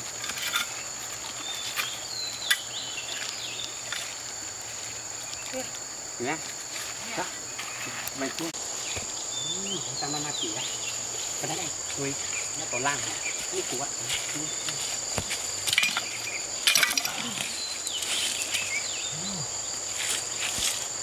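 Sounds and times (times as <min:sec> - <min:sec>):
digging blade scraping gravel: 0:00.0 - 0:02.7
insects droning: 0:00.0 - 0:21.0.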